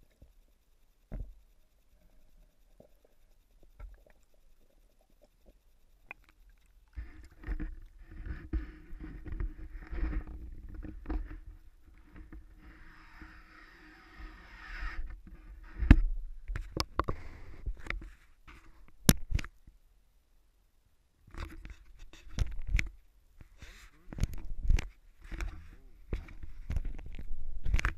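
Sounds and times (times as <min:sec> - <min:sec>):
muffled knocks and rubbing: 0:07.0 - 0:13.4.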